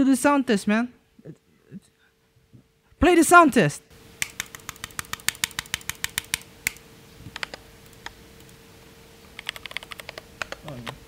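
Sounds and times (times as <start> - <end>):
mechanical keyboard typing: 4.2 - 8.5, 9.4 - 11.0.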